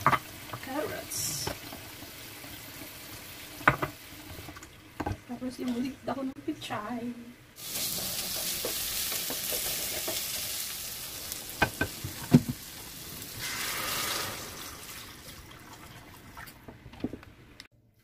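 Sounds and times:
meat sizzling in a pan: 0.0 - 4.5, 7.6 - 15.3
water poured into pan: 13.2 - 16.6.

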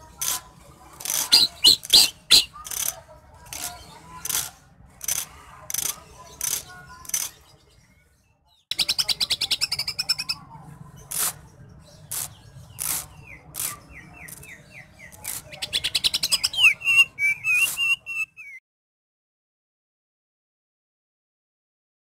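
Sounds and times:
caged bird singing trills: 1.0 - 4.5, 5.7 - 18.6.

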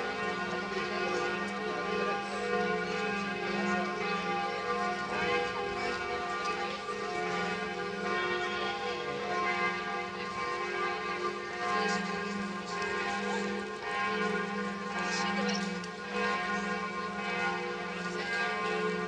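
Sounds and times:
church bells ringing: 0.0 - 19.0.

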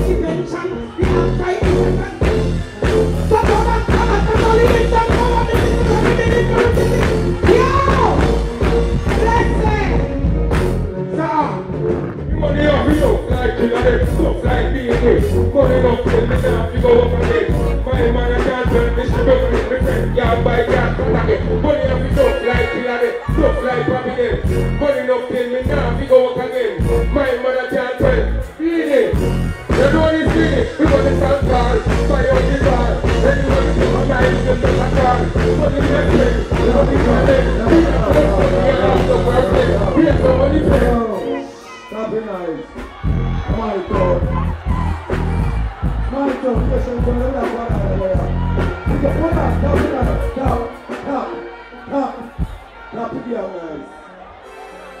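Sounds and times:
reggae music with heavy bass: 0.0 - 55.0
person singing into microphone: 12.4 - 29.1, 29.7 - 42.1.

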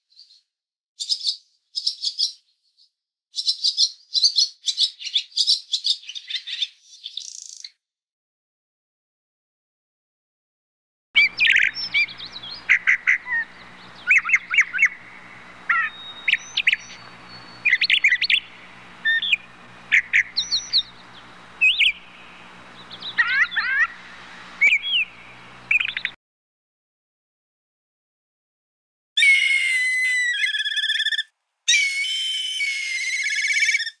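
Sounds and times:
crane calls: 11.2 - 26.2
low hum: 11.2 - 26.2.

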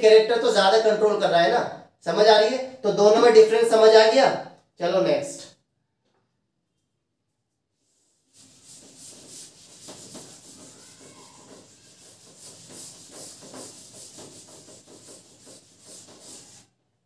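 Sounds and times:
pen scratching on paper: 8.3 - 16.7.

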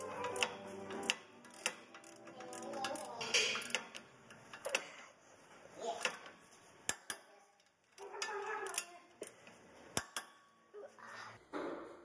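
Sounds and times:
wrench clicking on bolt: 0.0 - 4.9, 6.0 - 6.3, 6.9 - 10.4
light metallic clinks and scrapes: 0.0 - 10.5.

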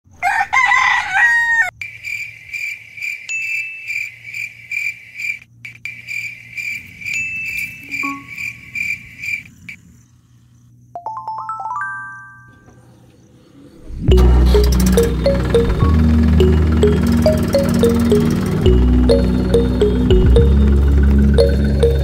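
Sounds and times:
rooster crowing: 0.1 - 1.7
high pulsing chirping: 7.4 - 9.0, 13.2 - 22.0
rising chime-like notes: 13.8 - 22.0.

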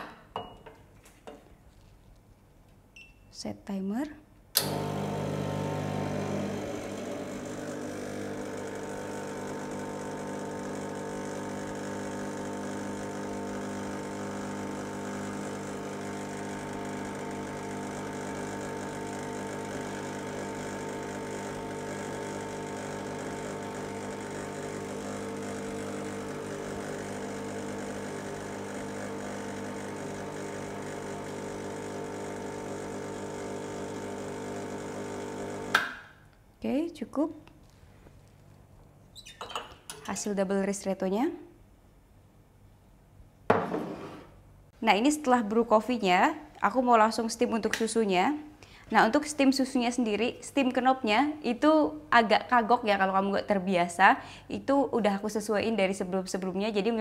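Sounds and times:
espresso machine pump buzzing: 4.6 - 35.8.

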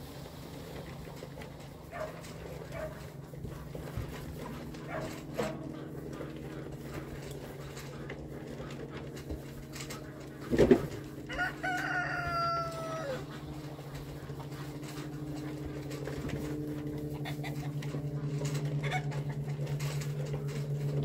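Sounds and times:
rooster crowing: 11.2 - 13.4.

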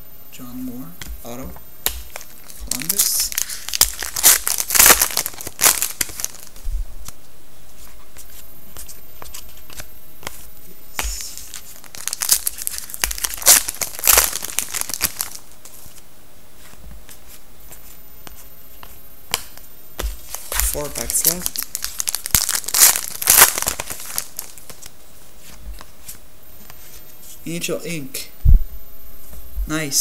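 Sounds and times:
foil wrapper crinkling and tearing: 2.1 - 6.5, 11.2 - 15.4, 20.2 - 24.9.

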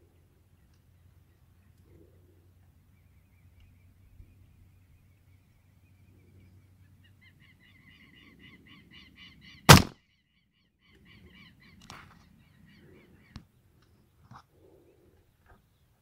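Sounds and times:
air rifle shot: 9.7 - 9.9
sharp click: 9.7 - 9.9.

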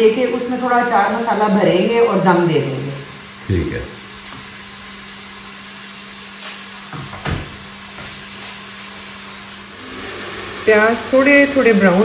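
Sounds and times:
onions sizzling in hot oil: 4.8 - 12.0.

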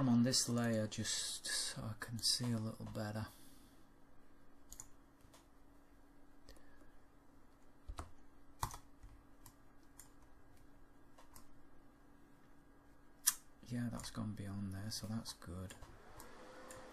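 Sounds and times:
faint steady low hum: 0.0 - 16.9
computer mouse clicks: 4.7 - 5.5, 7.9 - 11.6, 15.0 - 16.9.

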